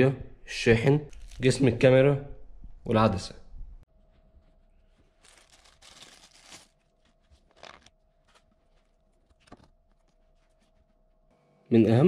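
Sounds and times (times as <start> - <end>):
packaging rustling and crinkling: 4.9 - 10.6.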